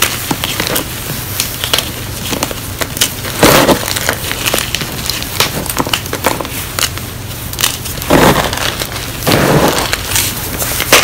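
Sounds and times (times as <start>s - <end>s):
chalk crumbling and crunching: 0.0s - 11.0s.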